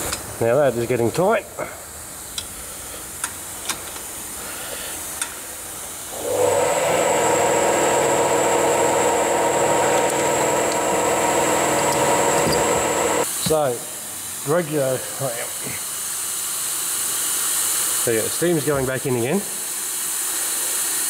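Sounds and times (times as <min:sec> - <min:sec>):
machine hum with high whine: 0:06.1 - 0:13.3.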